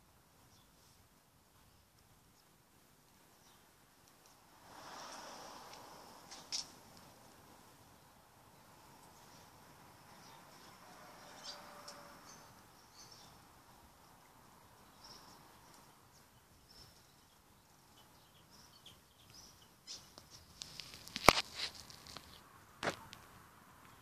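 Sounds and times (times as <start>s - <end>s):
distant bird chirps: 10.1s - 13.9s, 14.6s - 20.5s.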